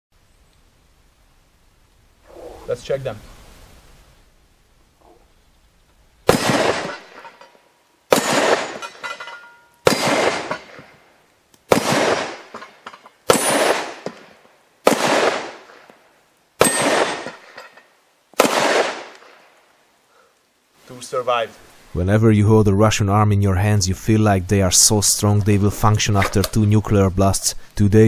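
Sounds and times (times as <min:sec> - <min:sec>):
pistol shots with echo: 0:06.2 - 0:07.2, 0:08.1 - 0:09.0, 0:09.8 - 0:10.9, 0:11.7 - 0:15.9, 0:16.6 - 0:17.6, 0:18.4 - 0:19.4.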